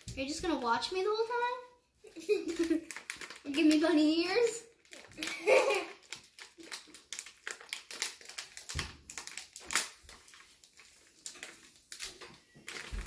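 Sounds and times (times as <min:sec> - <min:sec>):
plastic bag crinkling: 0:02.2 - 0:13.0.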